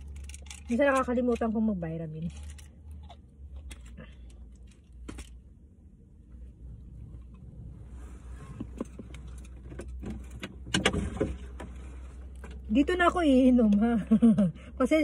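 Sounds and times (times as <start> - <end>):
car cabin hum: 6.0 - 15.0.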